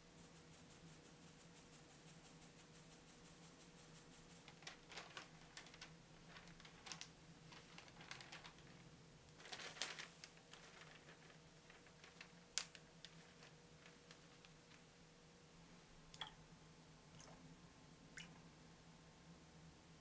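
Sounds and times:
paper sheet rustling: 0:04.4 - 0:14.8.

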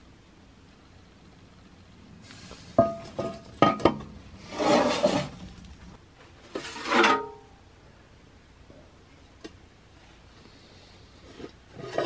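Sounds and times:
cast-iron lid clanking on skillet: 0:02.8 - 0:04.1
lid scraping across pan rim: 0:02.8 - 0:05.5, 0:11.3 - 0:12.0.

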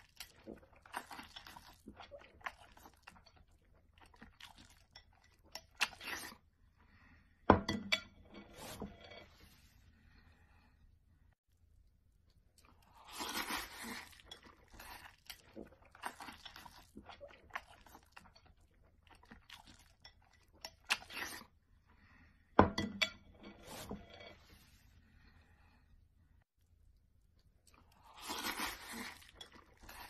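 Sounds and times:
noodles being slurped and chewed: 0:00.0 - 0:06.5, 0:12.3 - 0:21.6, 0:27.4 - 0:30.0.

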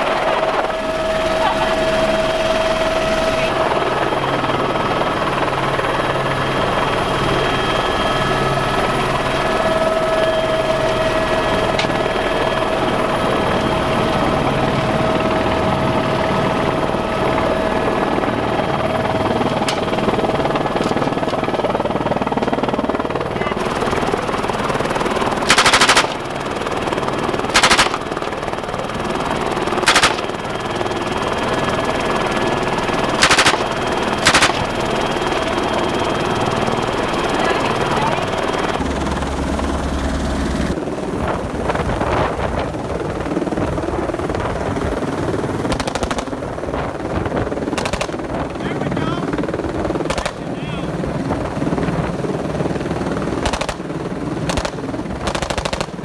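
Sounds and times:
helicopter flying: 0:00.0 - 0:56.0
machine-gun fire bursts: 0:25.4 - 0:26.4, 0:27.4 - 0:28.2, 0:29.8 - 0:30.4, 0:33.2 - 0:34.8, 0:45.7 - 0:46.3, 0:47.8 - 0:48.2, 0:50.1 - 0:50.5, 0:53.4 - 0:53.8, 0:54.4 - 0:56.0.

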